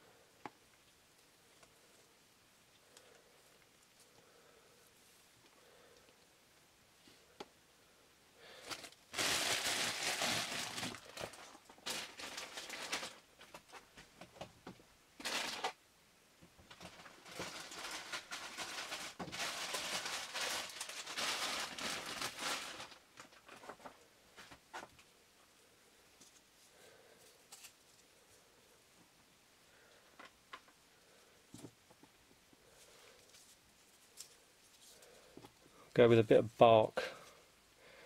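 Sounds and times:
dry moss rustling and crinkling: 8.5 - 14.1, 16.7 - 25.1.

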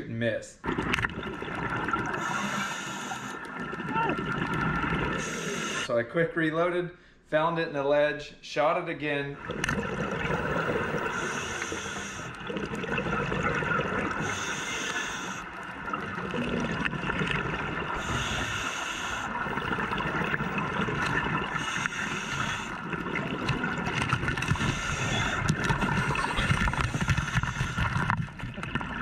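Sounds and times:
gurgle of exhaled bubbles: 0.6 - 5.9, 9.4 - 29.0
regulator breathing hiss: 2.2 - 3.4, 5.2 - 5.9, 11.1 - 12.4, 14.2 - 15.5, 18.0 - 19.4, 21.6 - 22.8.

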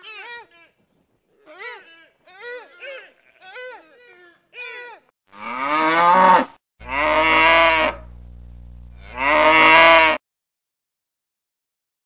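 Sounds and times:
cow mooing: 5.4 - 8.1, 9.0 - 10.2.

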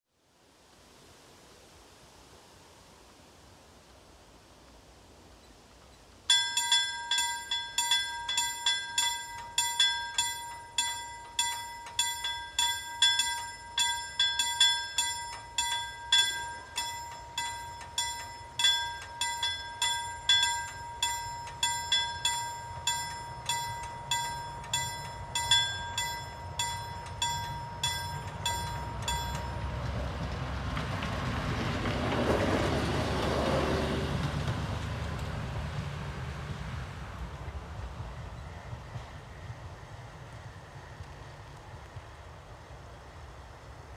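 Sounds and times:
railcar passing: 6.2 - 43.9
level-crossing bell ringing: 6.3 - 30.2.

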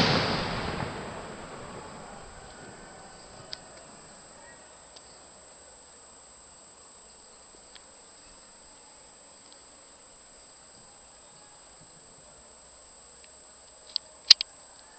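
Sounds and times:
firework bang rumble: 0.0 - 4.4
faint insect chirring: 0.0 - 14.9
steady high-pitched whine: 0.0 - 14.9
sharp clicks: 13.2 - 14.5.

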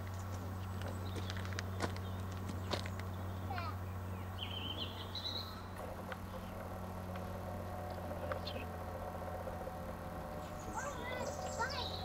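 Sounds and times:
low hum: 0.0 - 12.0
bird chirps: 0.8 - 6.6, 8.2 - 8.8, 10.3 - 12.0
small bird twittering trill: 1.0 - 5.7, 10.4 - 12.0.

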